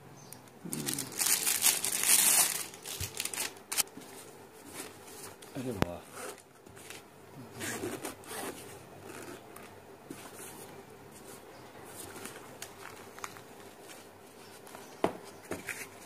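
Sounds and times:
plastic packaging rustling: 0:00.7 - 0:07.1, 0:07.7 - 0:16.0
zipper opening: 0:07.5 - 0:09.4.

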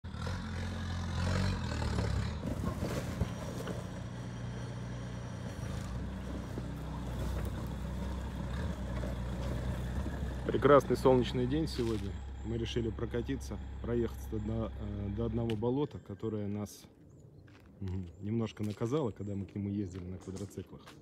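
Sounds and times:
diesel engine running: 0:00.0 - 0:16.3.

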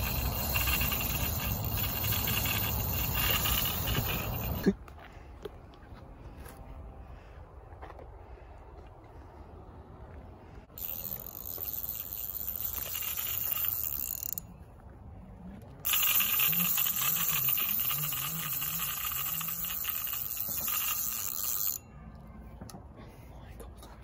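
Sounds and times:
fishing reel drag buzzing: 0:00.0 - 0:04.6, 0:10.7 - 0:14.5, 0:15.8 - 0:21.8.

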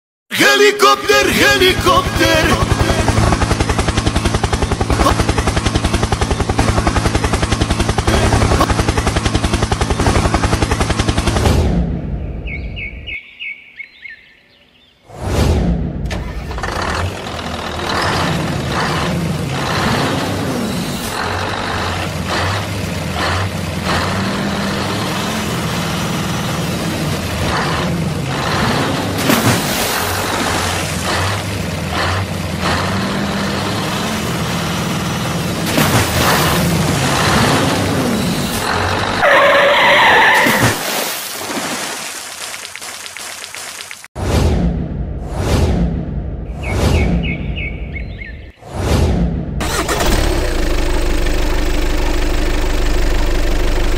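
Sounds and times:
heavy truck engine running: 0:01.2 - 0:12.2, 0:16.0 - 0:39.7, 0:49.6 - 0:53.9.

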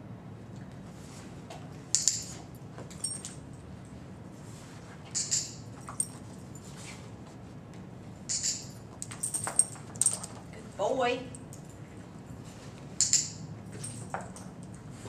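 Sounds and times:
dog collar tags jingling: 0:02.9 - 0:03.6, 0:08.3 - 0:10.6, 0:11.2 - 0:11.9.

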